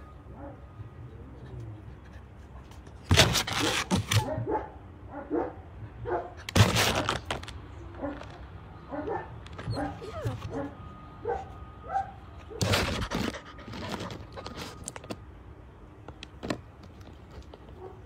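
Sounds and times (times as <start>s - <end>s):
puppy barking: 0.3s - 0.7s, 3.6s - 6.4s, 8.0s - 13.0s
puppy whining and yipping: 9.0s - 10.7s.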